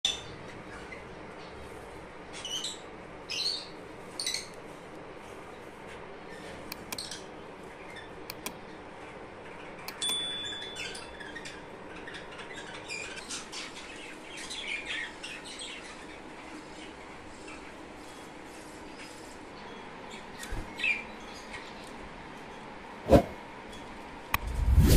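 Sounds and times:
small birds chirping: 0.1 - 22.7
sharp click: 8.3 - 8.6.

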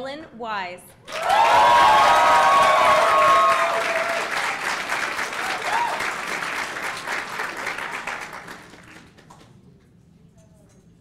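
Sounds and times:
audience applauding: 1.1 - 9.6.

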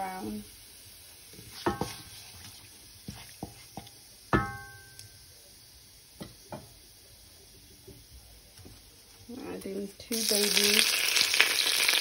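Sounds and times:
spices sizzling in oil: 0.0 - 12.0
spatula knocking on pan: 1.6 - 2.1, 3.1 - 5.0.

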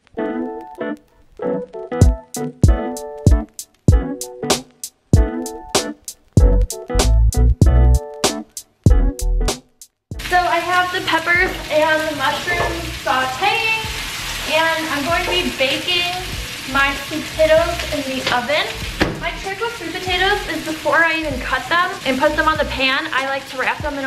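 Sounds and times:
vegetables sizzling in a frying pan: 10.2 - 24.0.

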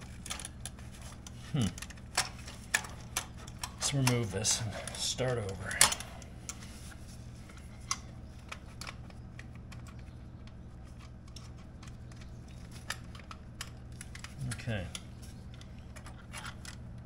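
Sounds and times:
steady low hum: 0.0 - 17.0
metal exhaust parts clicking: 7.5 - 17.0.

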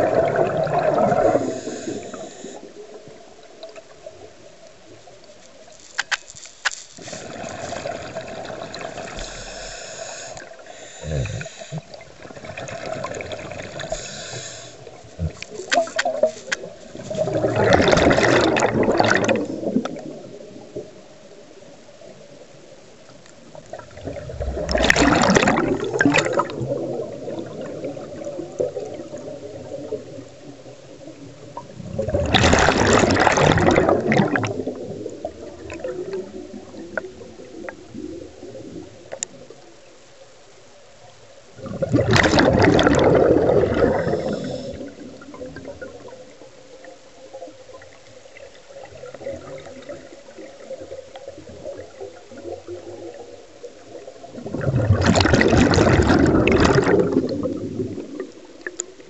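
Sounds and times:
diver exhaling bubbles underwater: 0.0 - 2.7, 7.0 - 20.2, 23.7 - 30.2, 31.6 - 38.9, 41.6 - 46.2, 53.9 - 58.4
underwater water noise: 0.0 - 59.0.

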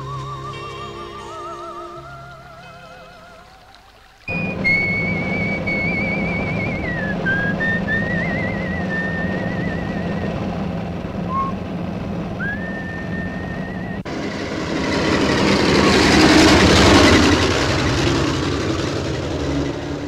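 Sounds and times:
van engine droning: 0.0 - 3.2, 4.3 - 20.0
road noise: 0.0 - 20.0
van driving by: 4.2 - 20.0
man whistling: 4.3 - 10.4, 11.3 - 11.6, 12.4 - 14.1.

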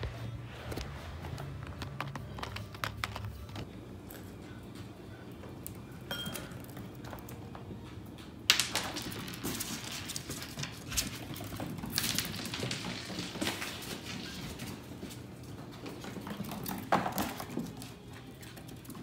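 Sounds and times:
puppy claws pattering on tile: 0.7 - 5.0, 6.4 - 19.0
ice cube clattering on tile: 8.5 - 14.6.

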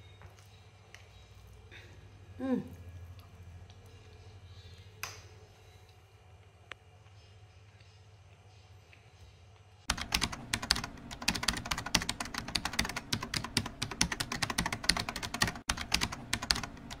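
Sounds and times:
rapid keyboard clicking: 9.9 - 17.0.

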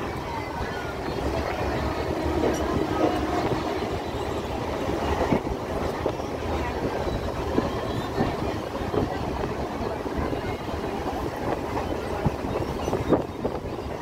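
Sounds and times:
train rumbling and rattling: 0.0 - 14.0.

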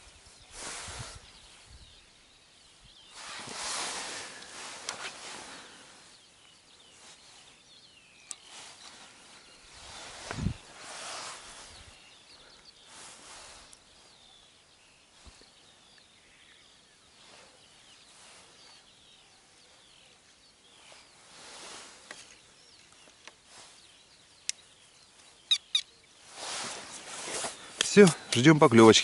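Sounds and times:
small birds chirping: 0.0 - 29.0
soft rushes of noise: 0.4 - 1.8, 3.1 - 6.1, 8.4 - 12.1, 12.8 - 14.1, 20.8 - 22.1, 26.2 - 27.8.

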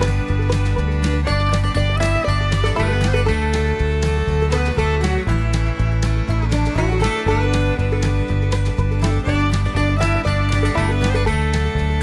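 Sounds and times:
instrumental music with pulsing beat: 0.0 - 12.0.

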